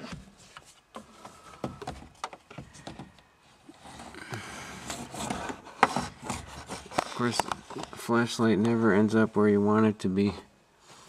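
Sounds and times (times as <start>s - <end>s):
rustling rubbing: 3.4s - 8.4s.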